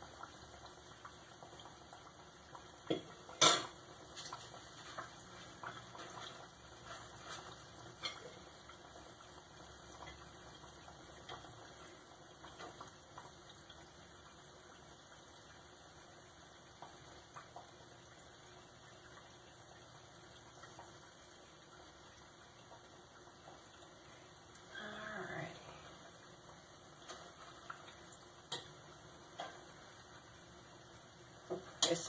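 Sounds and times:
oil bubbling: 0.0s - 32.0s
metal utensil clinking on saucepan: 2.9s - 3.7s.

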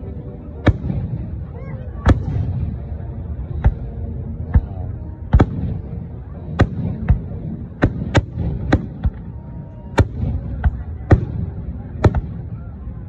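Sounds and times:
faint voices: 0.0s - 13.0s
low rumble: 0.0s - 13.0s
firework booms: 4.6s - 9.3s.

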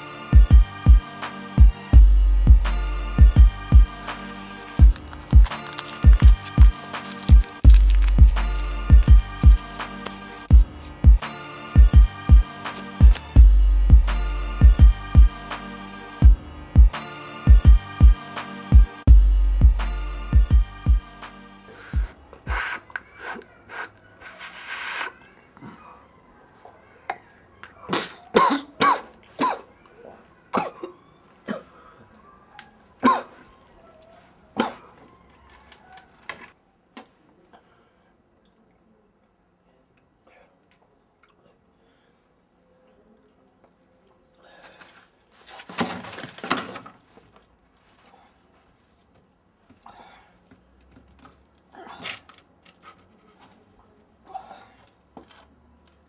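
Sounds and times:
person coughing: 27.9s - 29.7s, 30.5s - 31.8s, 33.0s - 33.4s, 34.6s - 34.9s.

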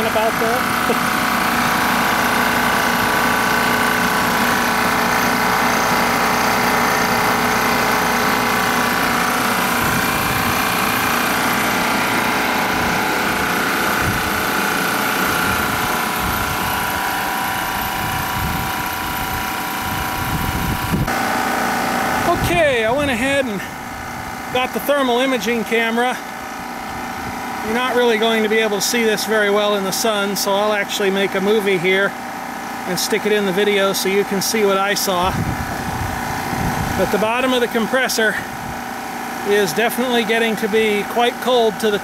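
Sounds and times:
low rumbling: 0.0s - 24.9s, 35.1s - 37.8s
recovery machine hum and whine: 0.0s - 42.0s.

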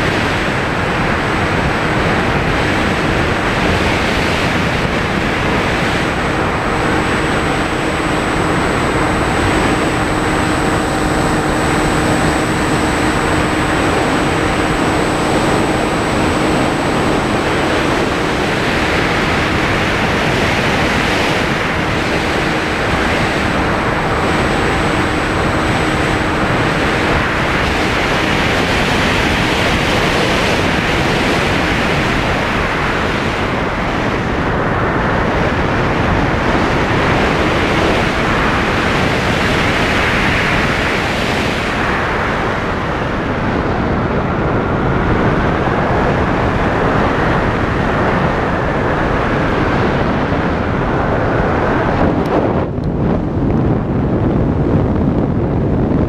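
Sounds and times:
faint engine tones: 0.0s - 54.4s
wind rushing over microphone: 0.0s - 56.0s.

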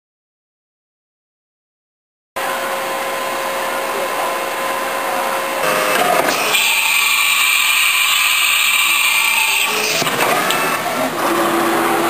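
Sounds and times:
milling machine humming and whining: 2.4s - 12.0s.

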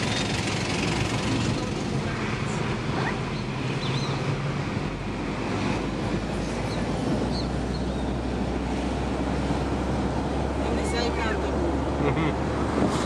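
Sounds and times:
engine hum: 0.0s - 13.0s
wind noise: 2.6s - 10.6s.

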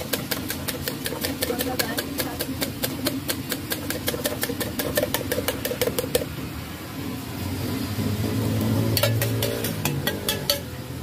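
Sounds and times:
engine hum: 0.0s - 11.0s
spoon clinking against metal cup: 9.0s - 10.7s.

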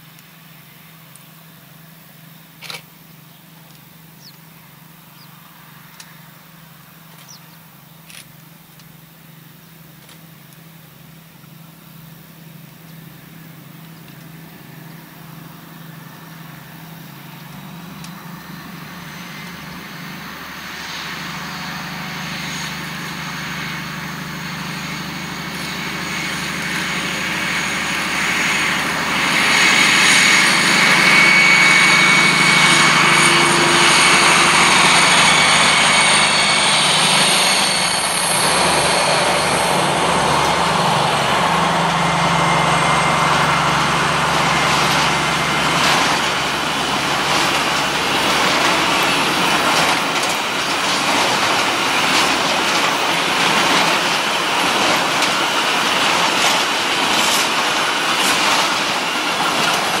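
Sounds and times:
locomotive engines droning: 0.0s - 60.0s
train wheels clacking over rail joints: 17.1s - 60.0s.

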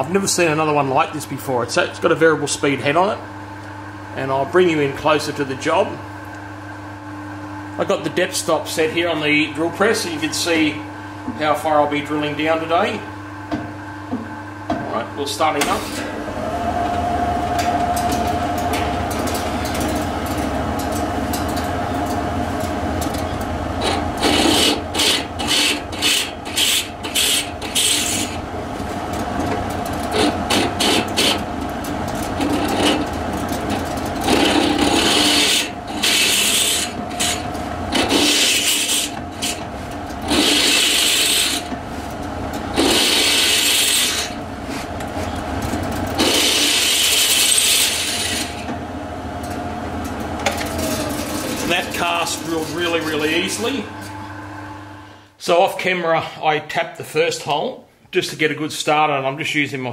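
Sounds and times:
drill press motor hum: 15.5s - 55.3s
drill bit scraping metal: 23.8s - 28.4s, 30.1s - 31.4s, 34.2s - 39.6s, 40.2s - 41.7s, 42.8s - 44.4s, 46.2s - 48.6s.

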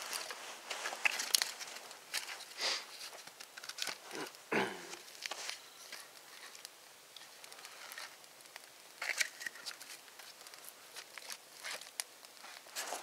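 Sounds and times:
footsteps crunching in snow: 0.0s - 2.8s, 12.4s - 13.0s
campfire crackling and popping: 0.0s - 13.0s.

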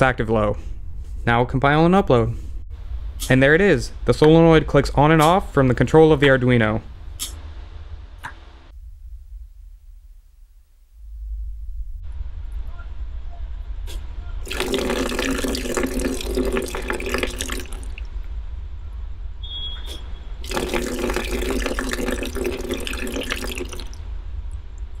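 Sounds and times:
water gushing from valve: 14.4s - 18.2s, 20.4s - 24.0s.

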